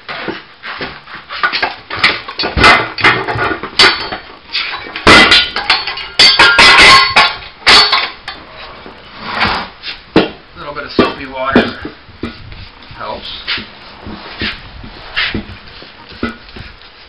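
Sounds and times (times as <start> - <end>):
tire bar clanking on wheel rim: 0.1 - 12.5.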